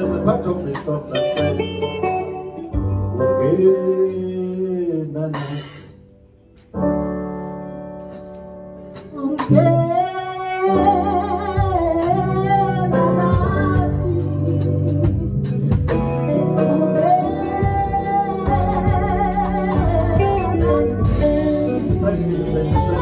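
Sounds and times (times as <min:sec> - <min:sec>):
bass: 0:00.0 - 0:23.0
electric keyboard chords: 0:00.0 - 0:23.0
woman singing: 0:09.1 - 0:15.3, 0:16.6 - 0:23.0.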